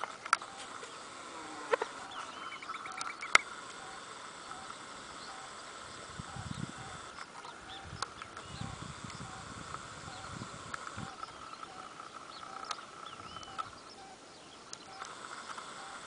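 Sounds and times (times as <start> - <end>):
insects chirring: 0.0 - 16.0
short repeating calls: 0.0 - 16.0
whistled bird note: 2.0 - 4.0
wind rumble on microphone: 5.9 - 11.8.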